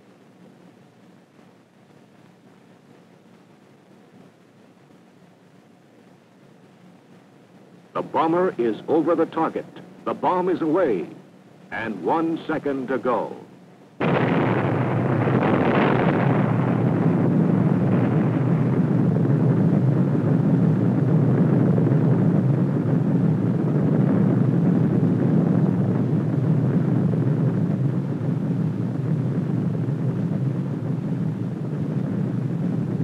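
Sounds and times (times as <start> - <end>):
explosion blast: 14.0 - 33.0
long low rumble: 14.0 - 33.0.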